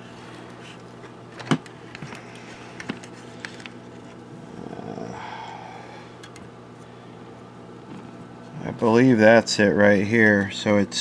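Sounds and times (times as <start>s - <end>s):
steady low hum: 0.0s - 11.0s
low grumbling murmur: 4.4s - 5.3s.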